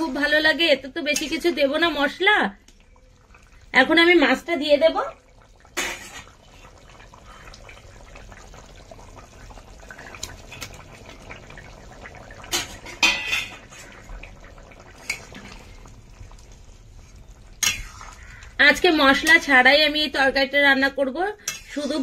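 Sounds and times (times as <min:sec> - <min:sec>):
curry bubbling: 0:00.0 - 0:22.0
metal utensil clinking on pot: 0:12.5 - 0:13.7, 0:21.4 - 0:22.0.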